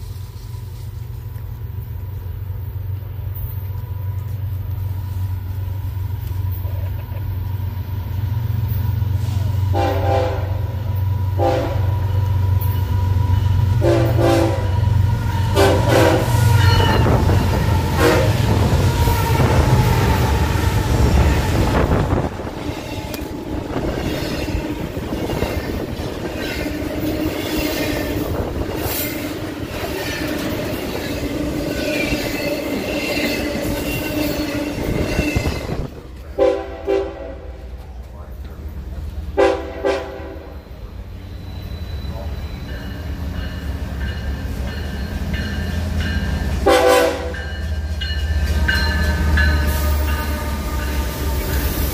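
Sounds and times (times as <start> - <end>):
train air horn blasts: 9.1 - 37.8, 39.3 - 40.8, 46.6 - 47.6, 48.4 - 51.9
wheel-on-rail noise: 12.0 - 36.4
faint wheel squeal: 40.5 - 43.2.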